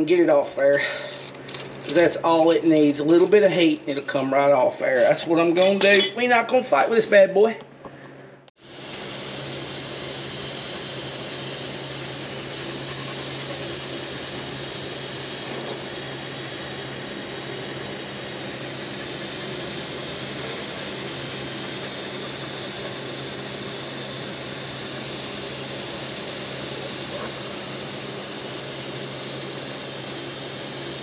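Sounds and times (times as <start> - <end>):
gas torch hissing: 8.5 - 31.0.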